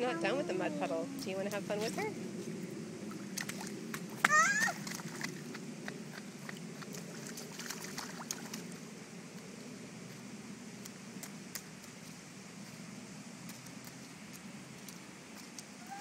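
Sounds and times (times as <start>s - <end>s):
low outdoor rumble: 0.0s - 16.0s
boots splashing in muddy puddle: 3.2s - 8.8s.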